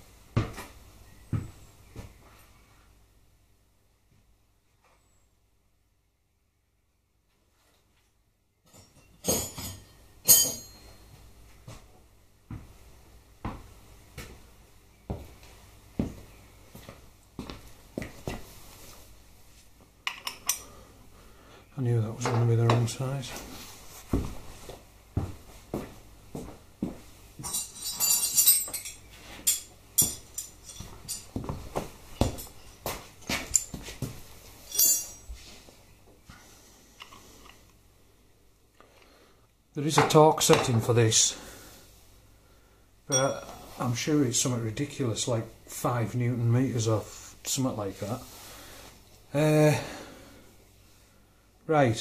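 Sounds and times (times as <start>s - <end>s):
metal hand tools clattering: 8.7s - 11.0s, 27.4s - 31.4s, 34.7s - 35.3s
spanners jangling together: 27.4s - 31.3s, 34.7s - 35.3s.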